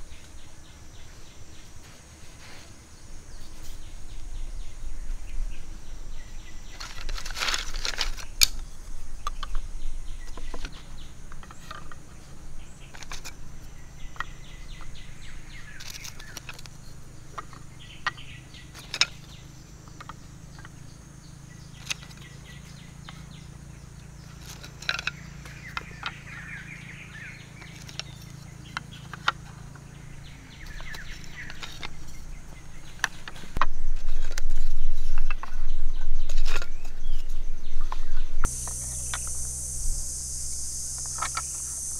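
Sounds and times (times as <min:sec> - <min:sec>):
birds chirping: 0:00.0 - 0:41.9
bamboo slats clicking: 0:06.8 - 0:08.6, 0:15.8 - 0:19.3, 0:19.9 - 0:20.8, 0:24.4 - 0:26.2, 0:27.6 - 0:29.8, 0:30.6 - 0:32.2, 0:32.9 - 0:35.5.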